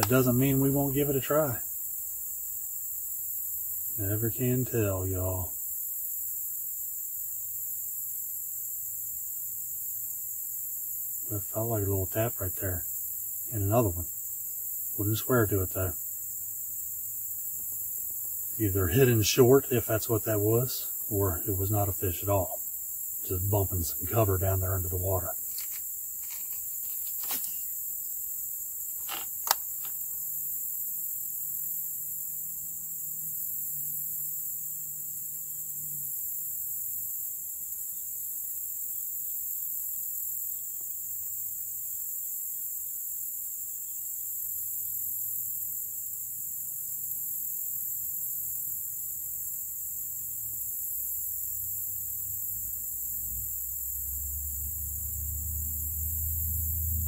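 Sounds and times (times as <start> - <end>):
sharp click: 0.0 - 0.3, 29.0 - 30.0
faint low hum: 0.0 - 1.6, 18.4 - 22.6, 23.2 - 25.4
insects chirping: 0.0 - 57.0.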